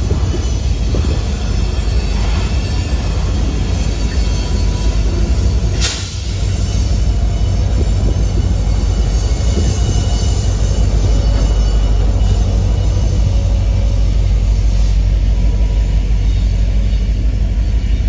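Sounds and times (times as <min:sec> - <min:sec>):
diesel locomotive passing: 0:00.0 - 0:18.0
train wheels rumbling on rails: 0:00.0 - 0:18.0
faint wheel squeal: 0:00.2 - 0:18.0.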